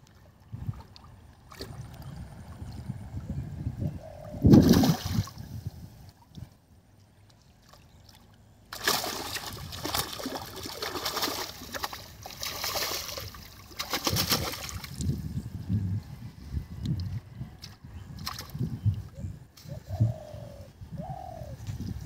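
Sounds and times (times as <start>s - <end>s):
heavy splash: 4.5s - 5.3s, 8.7s - 14.9s
fish thrashing and splashing: 8.7s - 15.0s.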